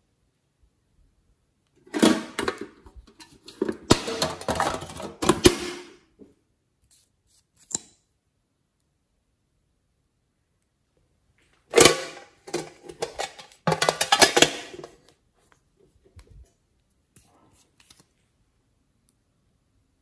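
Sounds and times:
tube clattering in metal tin: 1.9s - 5.7s, 11.7s - 15.0s.

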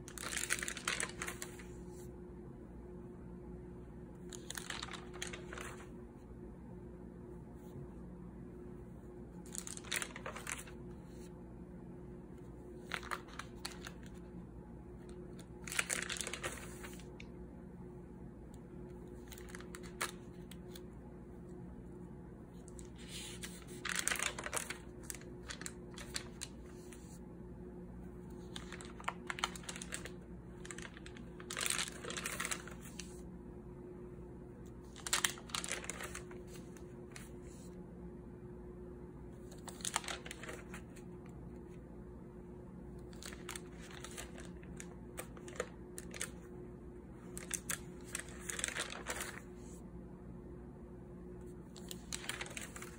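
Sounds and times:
notebook pages rustling: 0.0s - 2.1s, 4.2s - 6.2s, 9.0s - 11.3s, 12.4s - 14.3s, 14.9s - 17.3s, 18.9s - 20.9s, 22.5s - 27.2s, 28.0s - 33.2s, 34.7s - 37.8s, 39.4s - 41.8s, 43.0s - 49.8s, 51.7s - 52.9s
faint steady hum: 0.0s - 52.9s.

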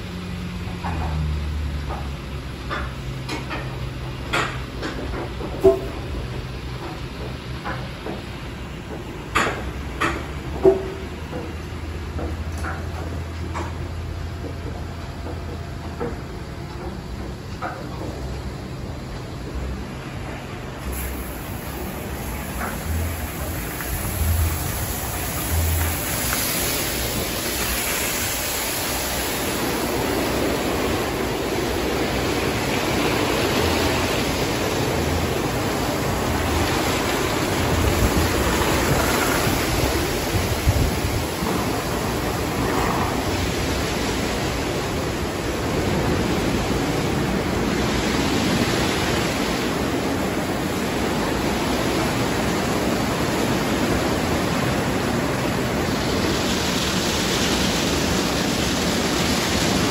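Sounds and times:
water spray rushing: 20.8s - 59.9s.

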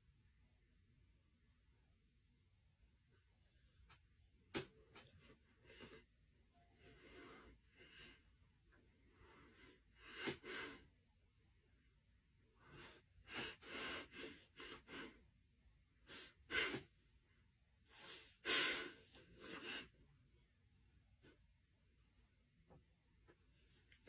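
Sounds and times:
breaths and sniffs: 9.1s - 10.9s, 12.6s - 15.2s, 16.0s - 17.0s, 17.8s - 20.0s.

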